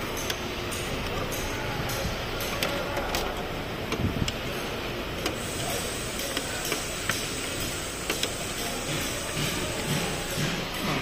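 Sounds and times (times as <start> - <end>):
tools and parts clicking: 0.0 - 5.4, 6.1 - 11.0
steady background noise: 0.0 - 11.0.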